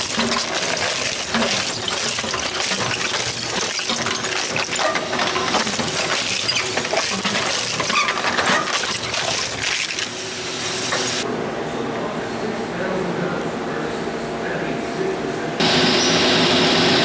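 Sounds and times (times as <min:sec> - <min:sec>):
metal fragments clinking: 0:00.0 - 0:11.2
shredder crunching metal: 0:00.0 - 0:11.2.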